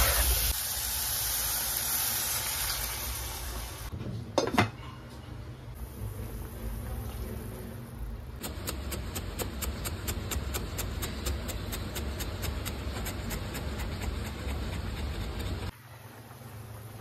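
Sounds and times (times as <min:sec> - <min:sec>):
pot boiling with hiss: 0:00.0 - 0:03.9, 0:05.7 - 0:17.0
knife chopping on cutting board: 0:08.4 - 0:15.7.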